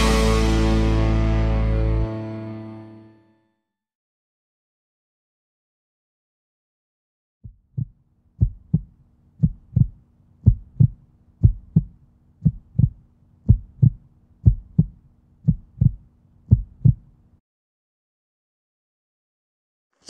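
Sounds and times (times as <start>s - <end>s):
heartbeat double thump: 7.5s - 17.1s
faint low hum: 8.0s - 17.4s.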